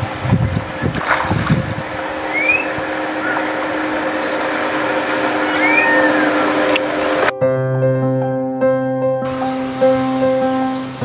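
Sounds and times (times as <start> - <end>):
low hum: 0.0 - 7.3
low rumble: 0.0 - 7.3
steady rushing noise: 0.0 - 7.3
bird chirps: 2.2 - 7.2, 10.7 - 11.0.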